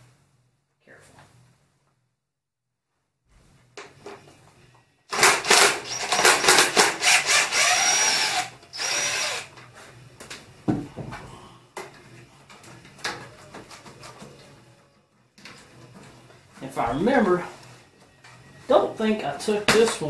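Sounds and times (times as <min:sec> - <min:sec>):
cordless drill whining: 0:05.1 - 0:09.5.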